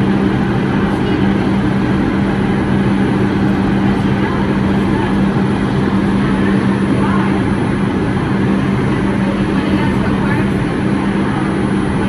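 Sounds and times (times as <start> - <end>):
subway car equipment hum: 0.0 - 12.0.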